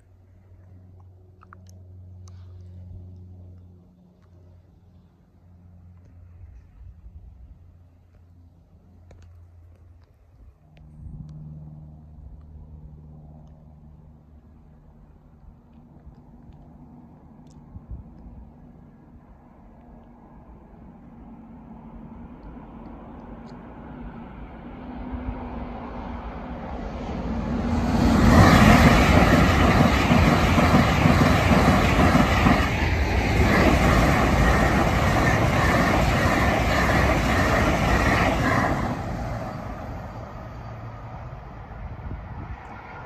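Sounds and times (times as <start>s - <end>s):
electric train passing: 18.5s - 43.0s
train whine: 19.1s - 43.0s.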